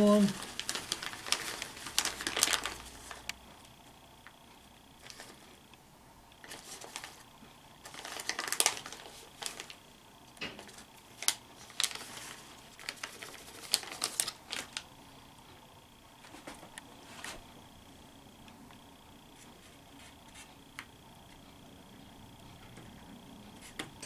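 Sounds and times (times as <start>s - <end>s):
plastic bag crinkling: 0.0s - 3.4s, 6.4s - 7.2s, 7.8s - 9.9s, 10.6s - 14.9s.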